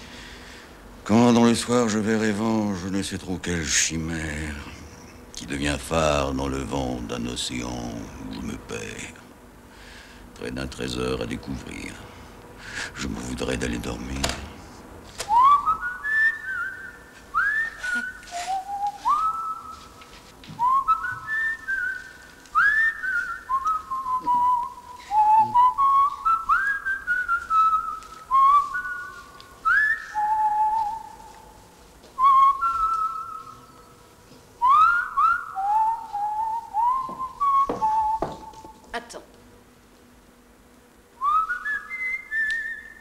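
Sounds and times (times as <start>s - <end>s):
person whistling a melody: 15.3s - 19.9s, 20.6s - 31.2s, 34.6s - 38.6s, 41.2s - 43.0s.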